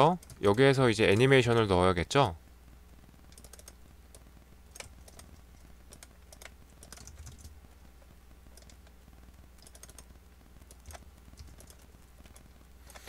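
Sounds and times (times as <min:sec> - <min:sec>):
low electrical hum: 0:00.0 - 0:13.0
keyboard typing: 0:03.3 - 0:03.8, 0:04.7 - 0:07.6, 0:08.5 - 0:08.9, 0:09.6 - 0:10.1, 0:10.7 - 0:13.0.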